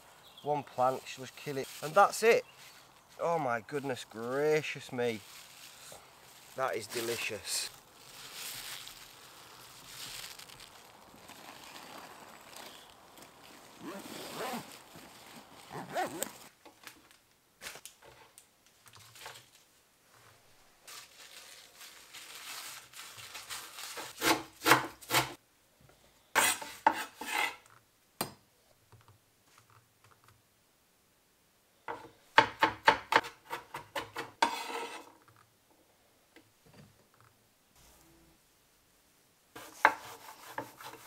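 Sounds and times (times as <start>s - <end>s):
knife blade scraping board: 26.4s - 27.6s, 33.5s - 35.1s.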